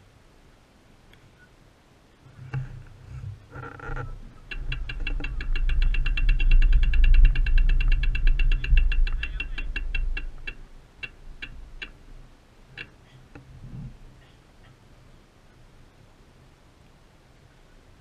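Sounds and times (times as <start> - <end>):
wind rumble on microphone: 2.2 - 14.2
bicycle freewheel ticking: 4.4 - 12.0.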